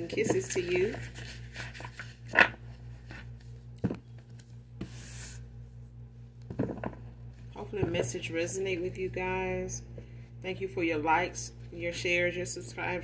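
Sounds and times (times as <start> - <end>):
cards rubbing and scraping: 0.1 - 3.6.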